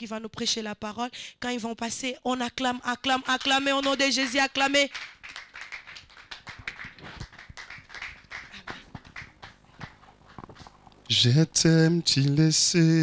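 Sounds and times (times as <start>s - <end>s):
people clapping: 3.0s - 10.7s.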